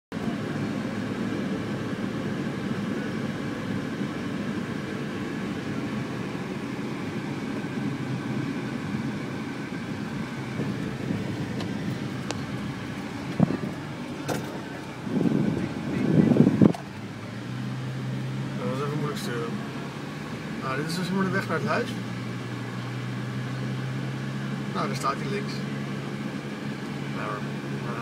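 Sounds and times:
car engine and tyre noise: 0:00.1 - 0:28.0.

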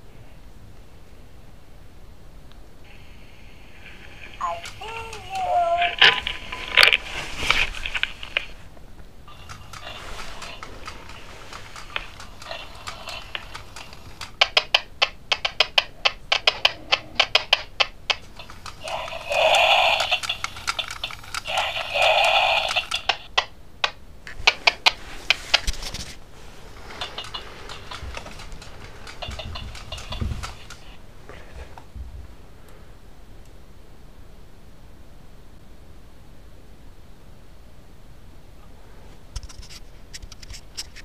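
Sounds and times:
animal calling: 0:03.8 - 0:08.6, 0:18.1 - 0:23.3
quick sharp clicks: 0:09.3 - 0:26.0.

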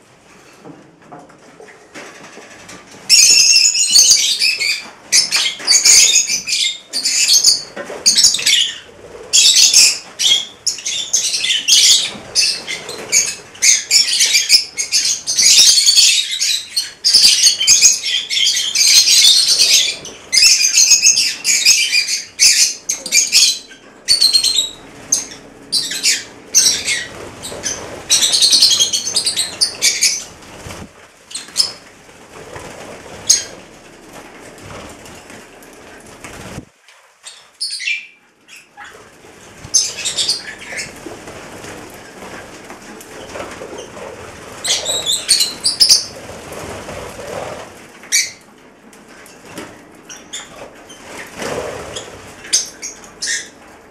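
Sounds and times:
wings flapping: 0:01.6 - 0:36.8, 0:38.8 - 0:53.9
lovebirds chattering: 0:03.1 - 0:31.9, 0:37.2 - 0:41.1, 0:42.2 - 0:48.4.

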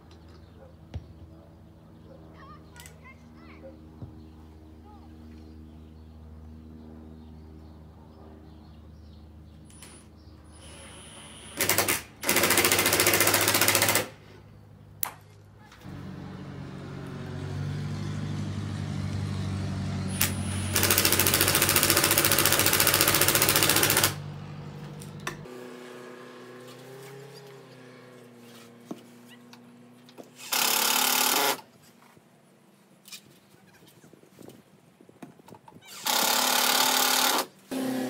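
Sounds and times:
motor whir: 0:20.1 - 0:24.2.

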